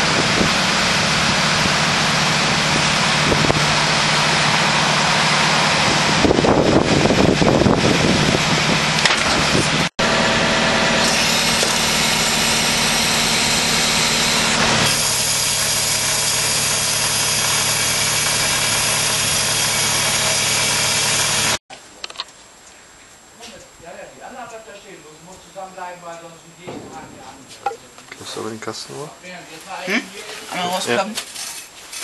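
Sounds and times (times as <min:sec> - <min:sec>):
diesel engine running loudly: 0:00.0 - 0:21.6.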